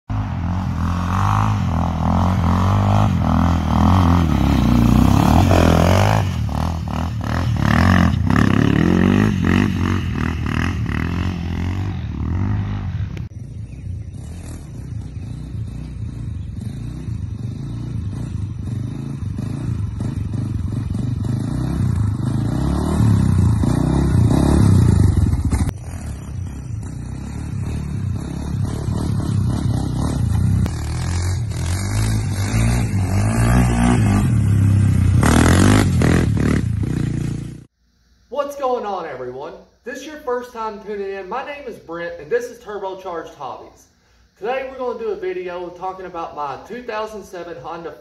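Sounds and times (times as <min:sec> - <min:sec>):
quad bike engine revving: 0:00.1 - 0:37.7.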